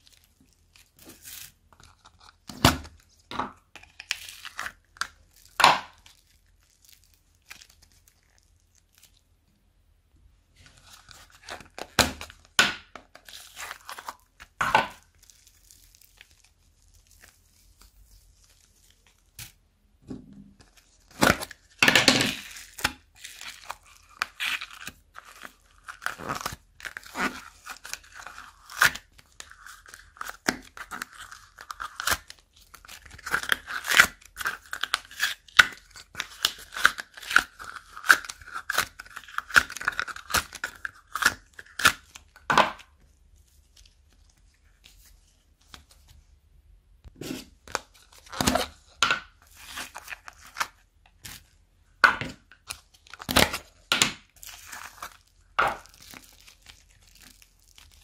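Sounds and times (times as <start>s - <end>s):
clay tearing and squishing: 0.0s - 9.5s, 10.5s - 58.0s
plastic bag crinkling: 54.4s - 58.0s.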